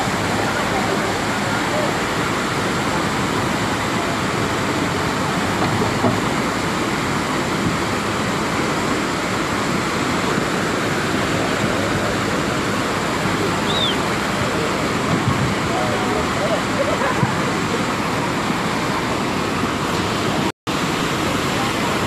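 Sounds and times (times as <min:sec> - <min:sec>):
river water rushing: 0:00.0 - 0:22.0.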